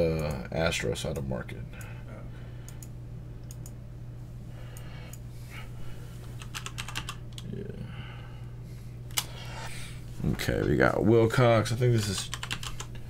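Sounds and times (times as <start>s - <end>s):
low electrical hum: 0.0s - 13.0s
computer keyboard typing: 6.4s - 7.5s, 12.1s - 12.9s.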